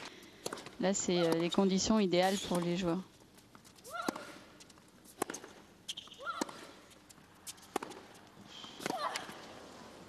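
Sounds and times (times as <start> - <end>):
tennis ball hit by racket: 4.0 - 4.5, 5.1 - 6.8, 7.4 - 8.2, 8.8 - 9.4.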